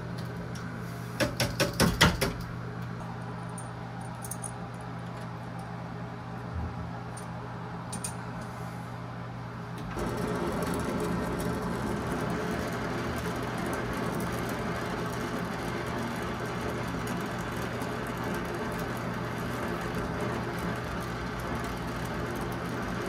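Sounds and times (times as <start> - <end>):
steady low hum: 0.0 - 23.0
sharp metal clicks and clinks: 3.5 - 4.8.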